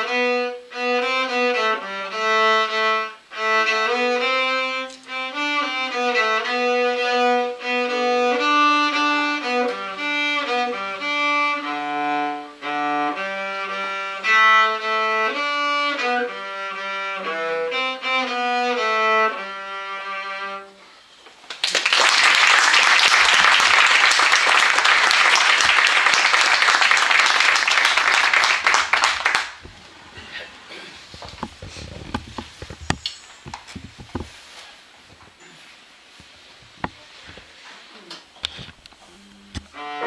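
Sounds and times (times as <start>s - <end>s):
cello with piano: 0.0s - 21.0s, 39.6s - 40.0s
audience applauding: 21.5s - 29.6s.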